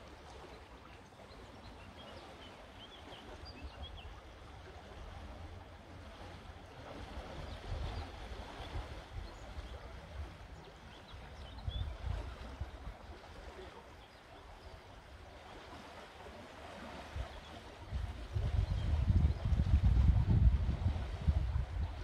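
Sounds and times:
wind rumbling on microphone: 3.4 - 13.8, 16.7 - 22.0.

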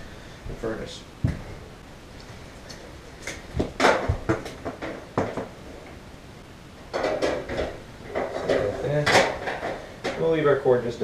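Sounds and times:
heater cabinet knocking and clattering: 3.3 - 5.6, 6.9 - 10.4.

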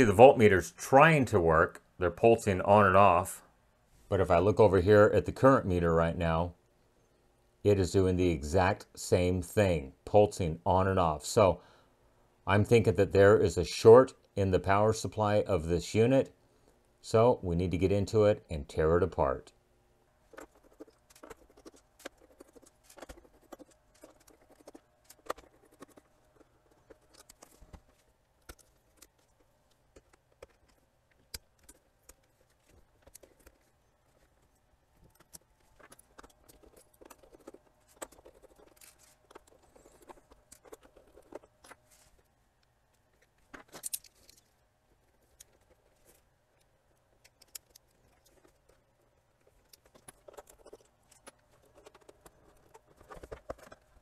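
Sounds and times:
plastic case clicks and scrapes: 49.4 - 54.0.

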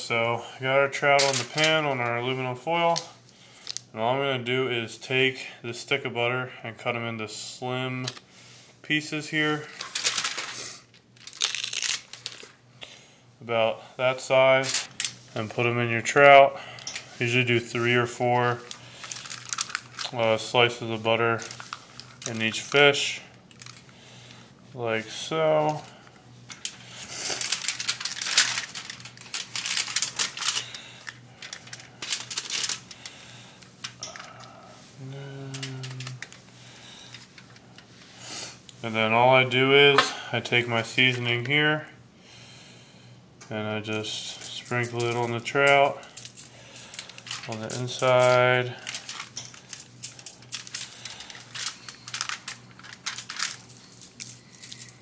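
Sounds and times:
aluminum foil crackling: 1.2 - 1.9, 9.5 - 12.6, 14.5 - 15.4, 16.6 - 24.4, 25.2 - 34.6, 35.3 - 38.2, 44.0 - 55.0
spice shaker rattling: 46.0 - 55.0.

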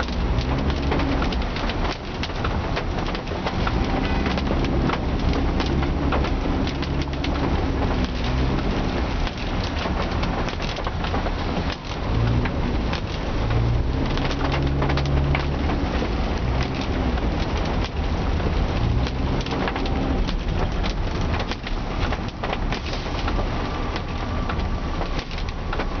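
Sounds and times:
car engine running: 0.0 - 23.6
rain on car: 0.0 - 26.0
tyres hissing on wet road: 0.0 - 26.0.

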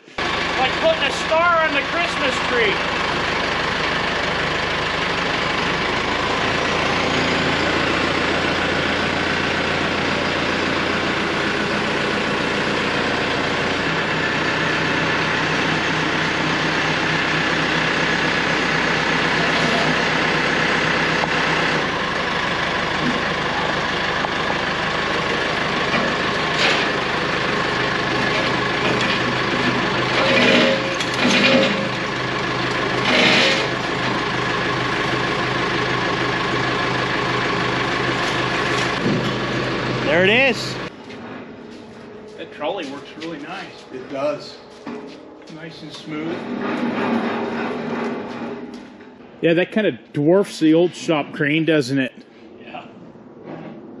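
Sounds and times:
loader engine idling: 0.0 - 54.0.

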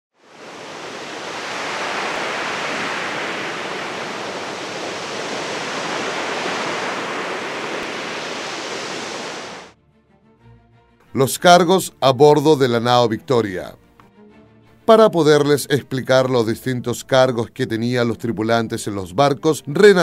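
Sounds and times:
steady rushing noise: 0.2 - 9.7.

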